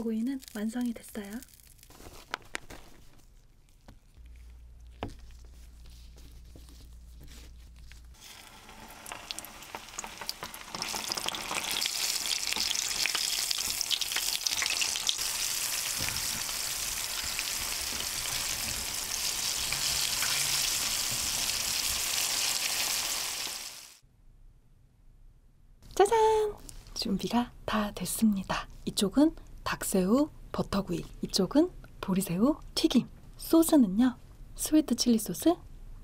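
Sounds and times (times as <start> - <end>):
shrimp sizzling in hot oil: 8.2 - 24.0.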